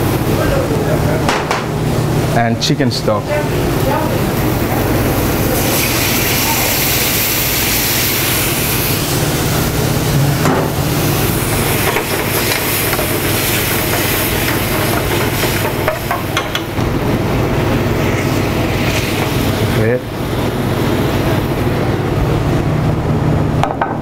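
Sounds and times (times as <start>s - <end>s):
kitchen exhaust hood rushing: 0.0s - 24.0s
stock sizzling in hot pan: 3.6s - 21.9s.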